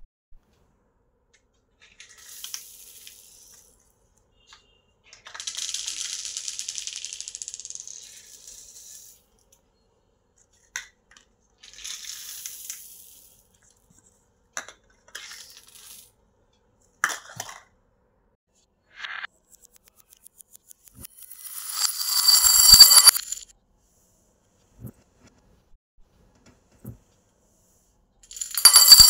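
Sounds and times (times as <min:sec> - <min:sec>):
beads scattering on tile floor: 0:02.0 - 0:03.7, 0:05.2 - 0:09.2, 0:21.2 - 0:23.4, 0:28.3 - 0:29.0.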